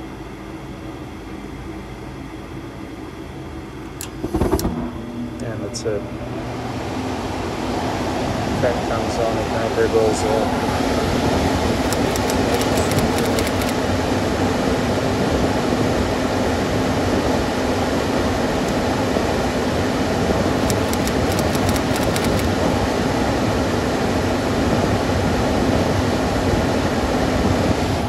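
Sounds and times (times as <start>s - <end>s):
furnace fan running: 0.0s - 28.0s.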